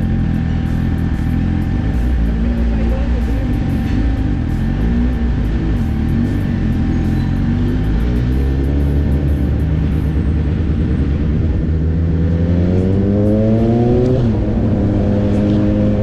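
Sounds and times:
motorcycle engine accelerating: 0.0s - 16.0s.

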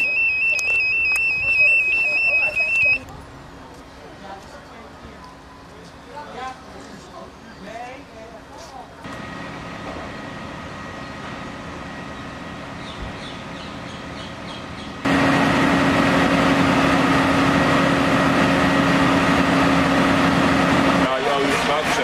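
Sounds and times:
diesel engine droning: 0.0s - 3.4s, 9.1s - 22.0s.

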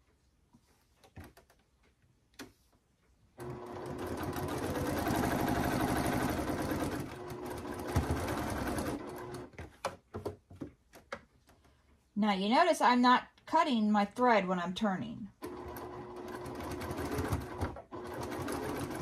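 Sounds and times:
sewing machine stitching: 3.4s - 9.6s, 15.4s - 19.0s.

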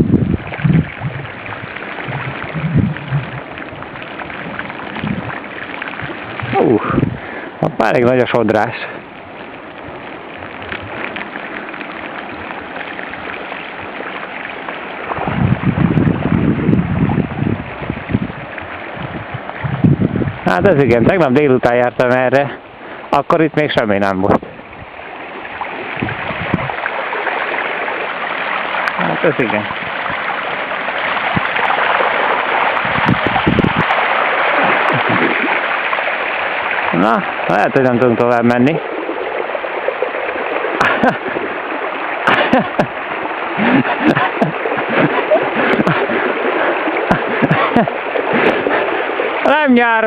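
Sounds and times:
wind buffeting microphone: 0.0s - 11.6s, 15.0s - 22.1s, 23.6s - 28.2s, 28.9s - 35.8s
bicycle tyres splashing through water: 0.0s - 50.0s
low wavering sounds: 0.3s - 7.2s.

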